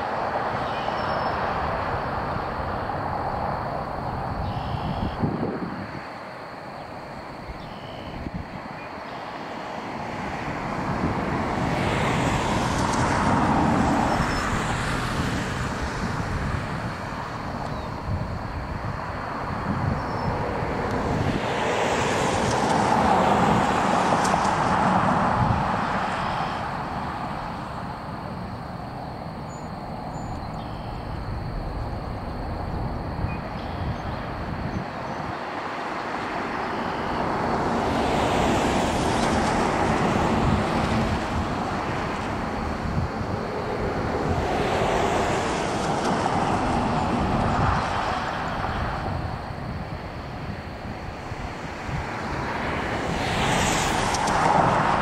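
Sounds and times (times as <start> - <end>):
jet engines roaring: 9.4 - 33.5, 35.2 - 55.0.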